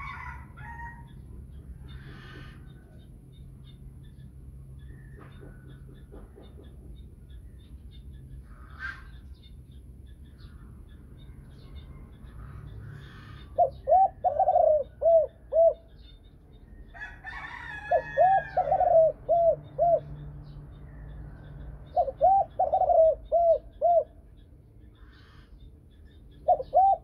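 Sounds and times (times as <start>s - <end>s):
dove cooing: 12.9s - 16.0s, 17.0s - 20.2s, 21.9s - 24.3s, 26.4s - 27.0s.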